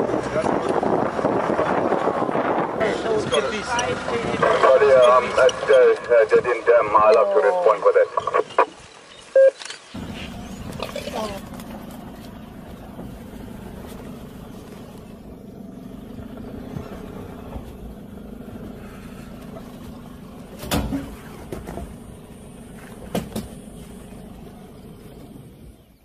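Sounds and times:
vehicle engine idling: 0:10.0 - 0:26.0.

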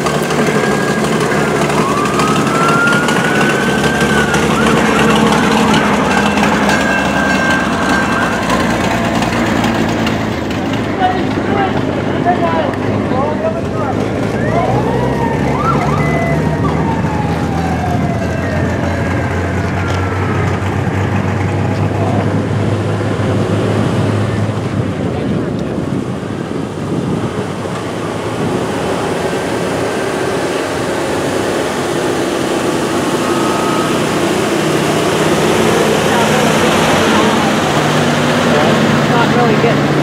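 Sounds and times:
fire engine driving past: 0:00.0 - 0:40.0
fire truck siren wailing: 0:00.0 - 0:40.0
idling engines hum: 0:00.0 - 0:40.0.

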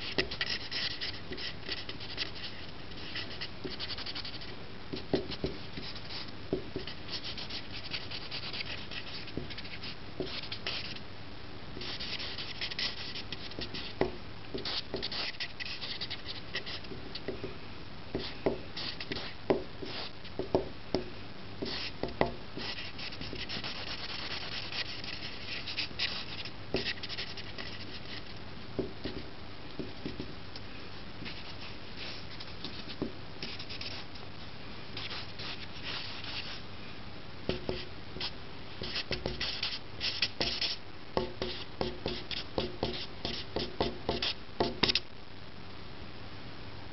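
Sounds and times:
marker scratching on paper: 0:00.0 - 0:11.0, 0:11.8 - 0:14.0, 0:14.6 - 0:16.9, 0:18.2 - 0:20.1, 0:21.6 - 0:22.0, 0:22.6 - 0:28.3, 0:31.2 - 0:34.1, 0:35.0 - 0:36.6, 0:37.5 - 0:40.8, 0:41.4 - 0:45.0.

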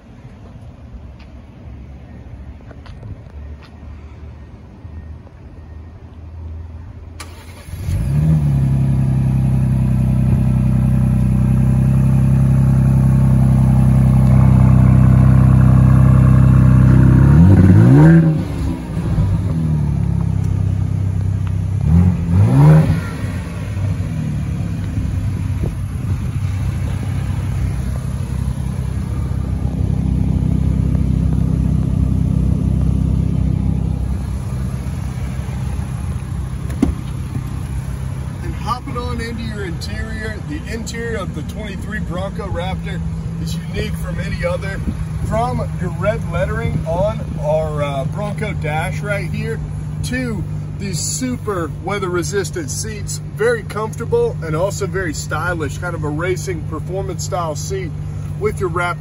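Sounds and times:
engine cranking and starting: 0:07.2 - 0:08.6
engine revving: 0:07.2 - 0:49.1
engine idling: 0:07.2 - 0:59.0.

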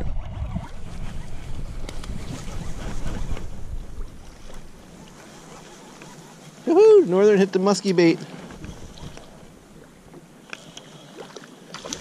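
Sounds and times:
wind rumbling on microphone: 0:00.0 - 0:06.2, 0:08.4 - 0:10.0
choppy lake water: 0:00.0 - 0:12.0.

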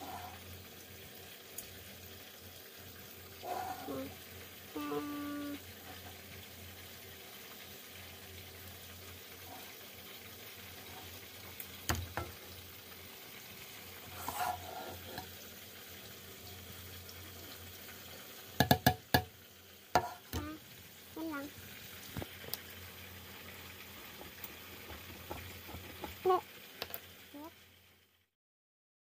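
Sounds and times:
faint steady hiss: 0:00.0 - 0:28.3
bowl being swirled: 0:14.0 - 0:15.3
bowl knock: 0:18.6 - 0:19.3.

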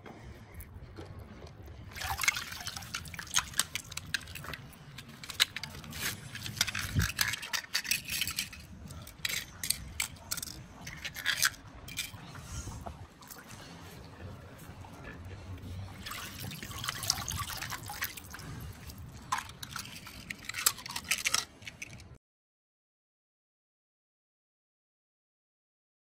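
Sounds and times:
water splashing and dripping: 0:00.9 - 0:07.6, 0:09.1 - 0:20.8
toy cars clicking and scraping: 0:02.6 - 0:12.3, 0:17.7 - 0:22.2.

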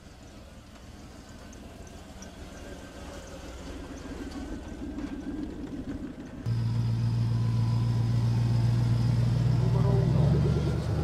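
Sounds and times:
engine idling: 0:06.5 - 0:11.0
loud steady low drone: 0:06.5 - 0:11.0.

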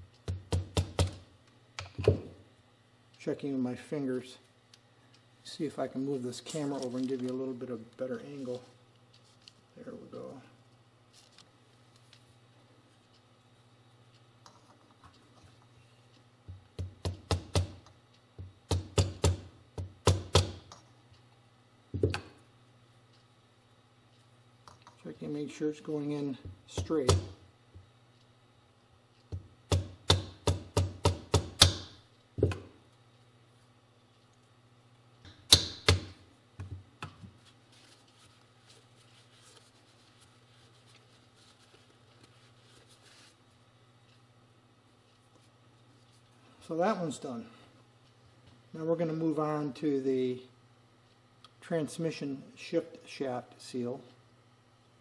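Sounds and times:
hammer tapping metal: 0:18.4 - 0:20.8, 0:26.7 - 0:27.4, 0:29.3 - 0:32.6, 0:35.2 - 0:36.2
mallet striking metal socket: 0:35.3 - 0:36.1
paper towel rustling: 0:37.4 - 0:43.4.

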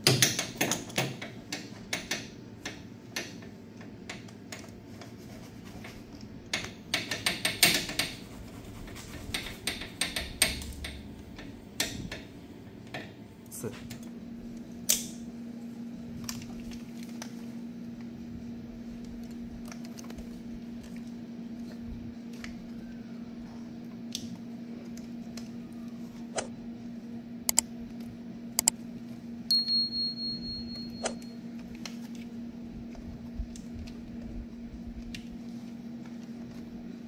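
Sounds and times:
high ringing tone: 0:29.5 - 0:31.5.

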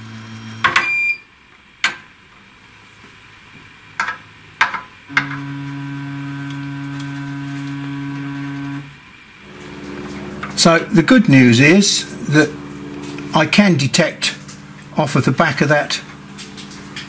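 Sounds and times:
stepper motor running: 0:05.1 - 0:15.4.

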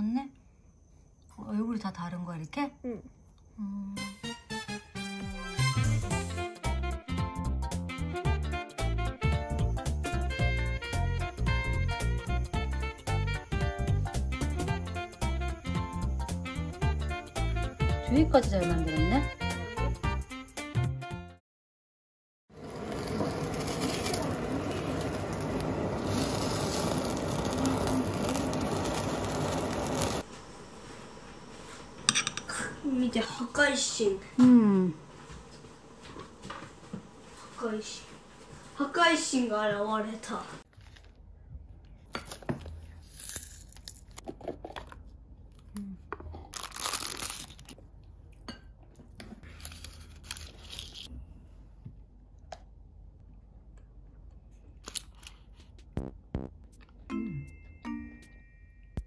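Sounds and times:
blowtorch hissing flame: 0:22.6 - 0:33.0.

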